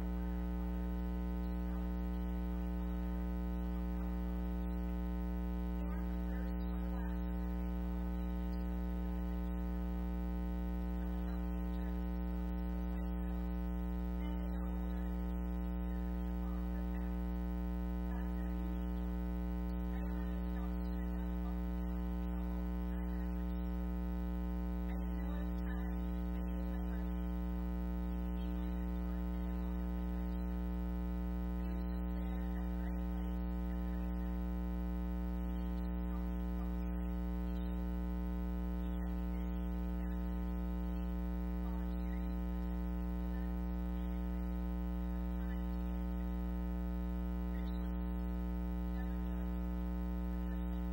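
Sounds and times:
electrical mains hum: 0.0s - 50.9s
person talking into a microphone: 24.8s - 27.4s.

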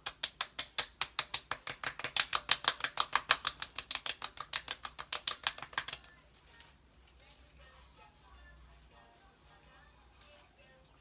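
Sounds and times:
palms patting face skin: 0.0s - 6.2s.

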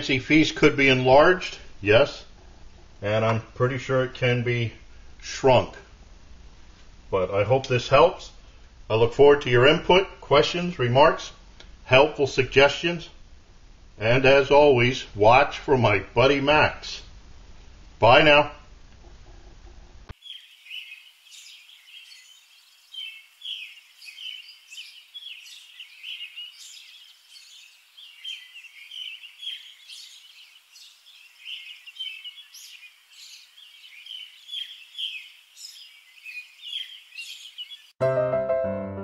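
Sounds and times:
birds chirping: 20.1s - 38.0s.

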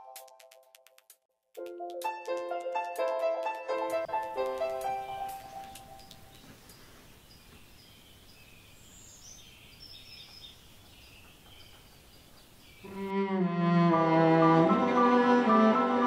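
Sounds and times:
bird chirps: 5.0s - 13.0s
orchestral music low notes: 12.9s - 16.0s.

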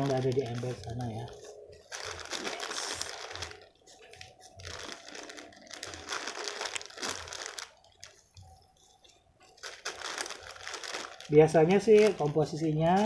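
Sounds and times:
plastic crinkling and rustling: 0.0s - 13.0s.

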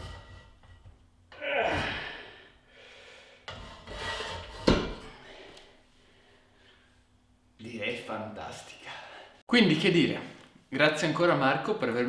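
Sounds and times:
man breathing out hard: 1.6s - 3.4s.

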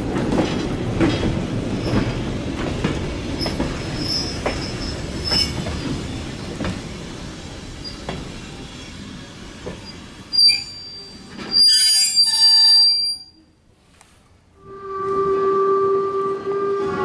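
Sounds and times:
train coach rumbling: 0.0s - 12.9s
steel wheel squeal: 3.9s - 5.6s, 9.8s - 13.4s.

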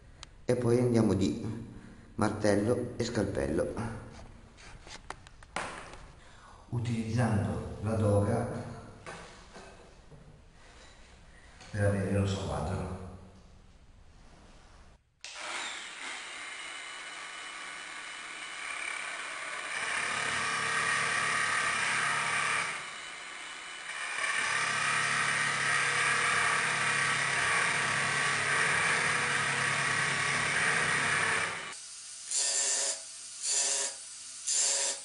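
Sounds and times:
angle grinder cutting wood: 15.2s - 35.0s.

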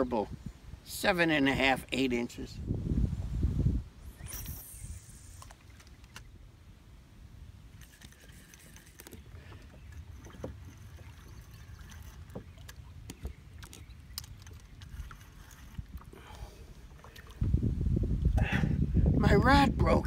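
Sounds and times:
clicks and knocks from fishing gear: 5.4s - 6.3s, 7.8s - 11.0s, 11.9s - 16.1s
water moving around boat: 7.7s - 17.5s.

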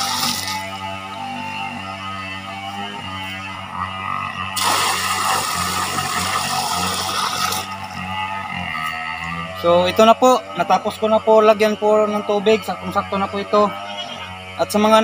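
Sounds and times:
water pouring and splashing: 4.6s - 7.7s.

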